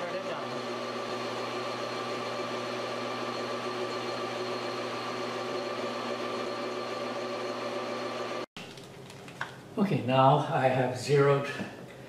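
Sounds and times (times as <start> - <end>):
metal lathe hum and whine: 0.0 - 8.5.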